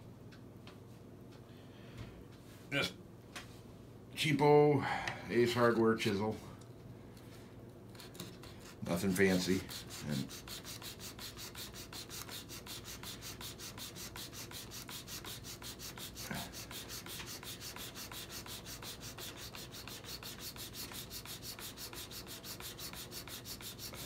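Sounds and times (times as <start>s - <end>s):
chisel rubbing on sharpening stone: 9.1s - 24.0s.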